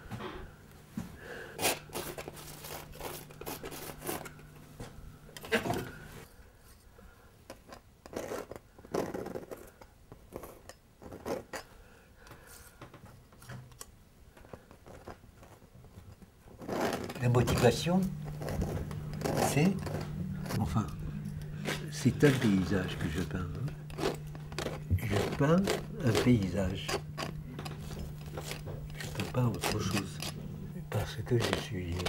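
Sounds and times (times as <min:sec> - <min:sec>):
palette knife scraping canvas: 0:01.6 - 0:04.5, 0:07.7 - 0:11.7, 0:14.5 - 0:15.6, 0:16.6 - 0:32.0.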